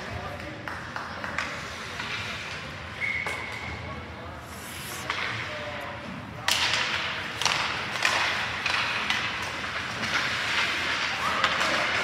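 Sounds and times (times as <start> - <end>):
skate blades scraping ice: 4.4 - 5.4.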